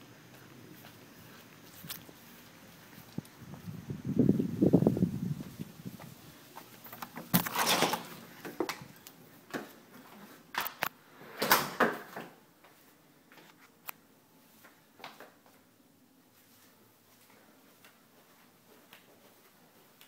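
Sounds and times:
front door swung shut: 7.0s - 8.2s.

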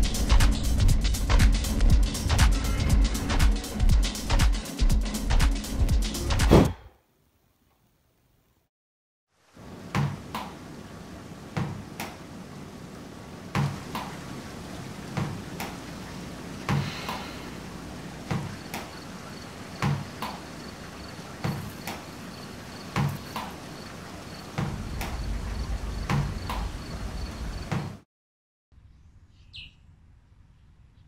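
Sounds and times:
double thuds: 24.5s - 25.4s, 26.0s - 26.8s.

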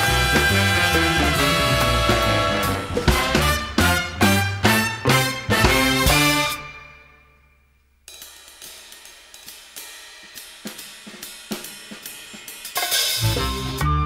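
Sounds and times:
background music tune: 0.0s - 7.7s
cymbal and hi-hat strokes: 8.1s - 13.4s.

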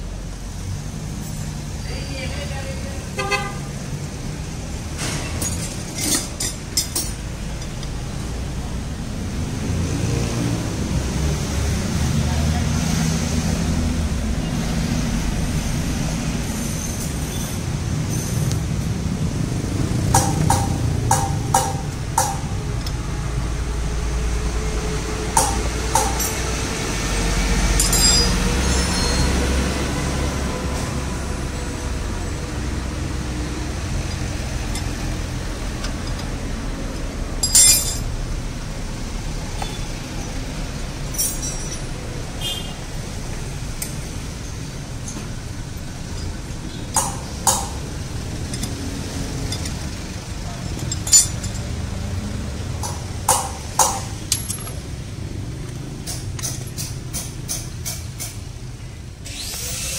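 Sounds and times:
wrench clinking on metal: 5.3s - 7.8s, 27.8s - 29.2s, 37.4s - 38.1s, 41.1s - 42.0s, 49.4s - 49.9s, 50.6s - 51.8s, 52.8s - 54.9s.

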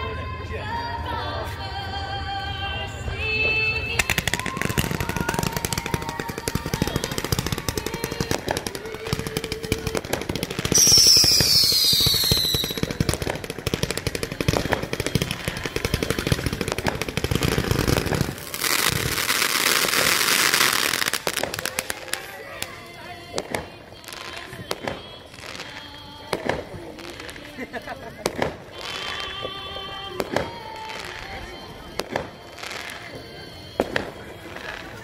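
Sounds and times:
faint music: 0.0s - 35.0s
fireworks firing volleys: 3.4s - 35.0s
falling firework whistle: 3.9s - 22.3s
hissing crackle: 4.0s - 22.8s.

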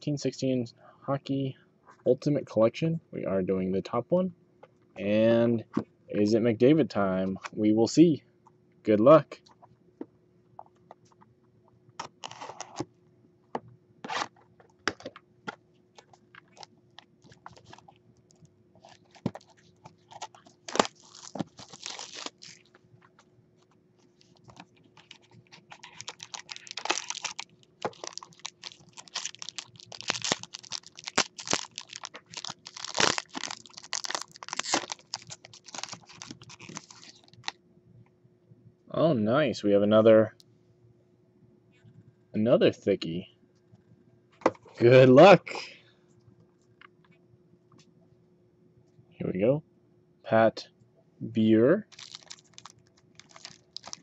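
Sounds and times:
plastic wrap crinkling and peeling: 16.0s - 23.2s, 24.0s - 37.6s, 51.9s - 54.0s
foil card pack tearing: 18.8s - 22.7s, 24.2s - 37.5s, 51.9s - 54.0s.

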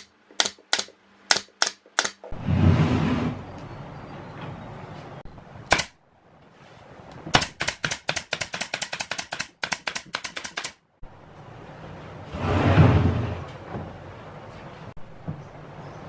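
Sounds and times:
pneumatic nailer firing: 5.7s - 6.0s, 7.3s - 10.8s.

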